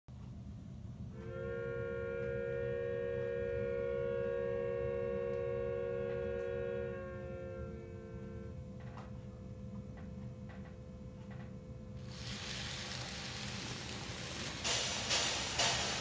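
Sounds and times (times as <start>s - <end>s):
model train rumbling: 12.0s - 16.0s.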